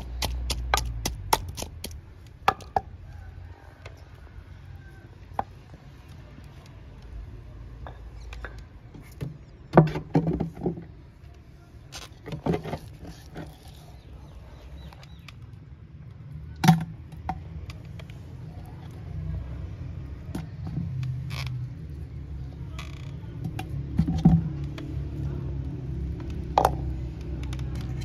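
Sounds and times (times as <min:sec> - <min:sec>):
sharp knocks and taps: 0:00.0 - 0:02.9.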